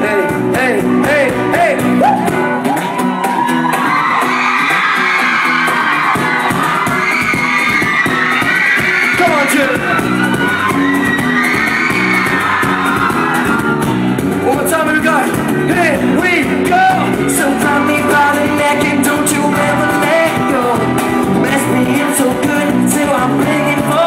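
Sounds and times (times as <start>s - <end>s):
man singing: 0.0s - 2.3s, 14.4s - 24.0s
strummed acoustic guitars: 0.0s - 24.0s
audience shouting and whooping: 1.9s - 14.2s.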